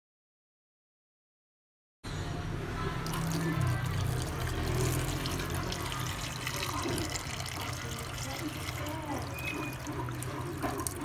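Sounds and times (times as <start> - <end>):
water pouring into metal pot: 3.0 - 11.0.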